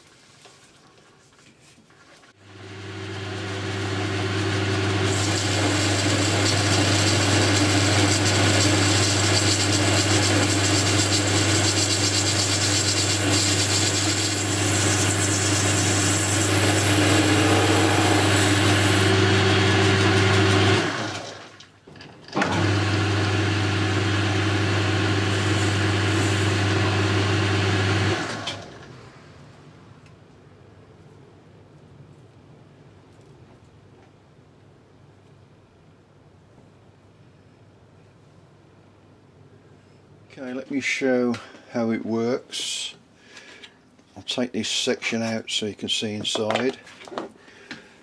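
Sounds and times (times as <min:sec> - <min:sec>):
lathe motor hum: 0:02.4 - 0:21.4, 0:22.4 - 0:29.1
hiss of cutting steel: 0:14.3 - 0:19.2.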